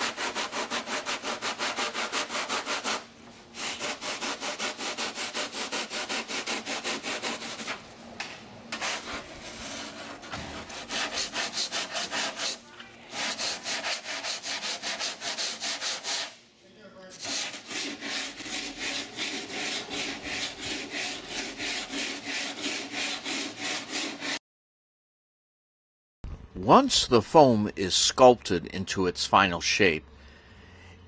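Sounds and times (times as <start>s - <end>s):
blade rasping over foam: 0.0s - 3.0s, 3.6s - 7.8s, 8.7s - 16.3s, 17.2s - 24.4s
sanding board on foam: 0.0s - 7.8s, 8.7s - 16.4s, 17.1s - 24.4s.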